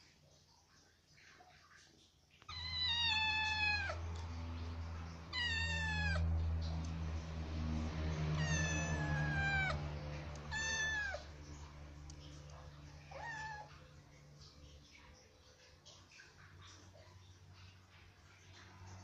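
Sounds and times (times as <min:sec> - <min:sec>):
kitten meowing: 0:02.5 - 0:04.2, 0:05.2 - 0:06.4, 0:08.2 - 0:11.3, 0:13.0 - 0:13.7.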